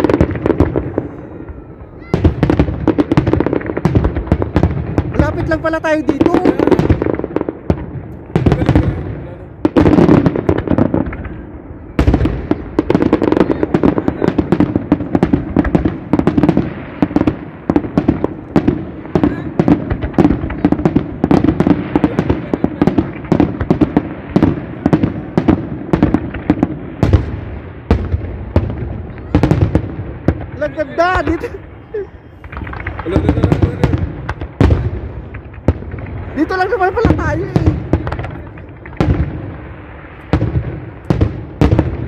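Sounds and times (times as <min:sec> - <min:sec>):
fireworks bursts and crackling bangs: 0:00.0 - 0:42.0.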